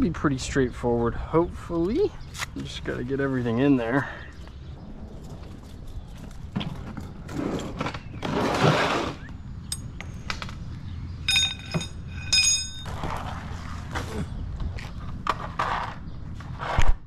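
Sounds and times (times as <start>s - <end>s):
scraping rush: 4.8s - 9.3s
tools knocking and clicking: 11.3s - 12.9s.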